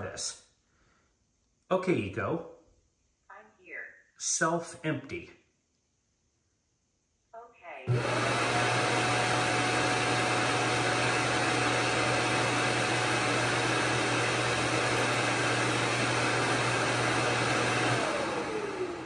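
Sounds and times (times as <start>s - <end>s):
suction motor whining: 7.9s - 19.0s.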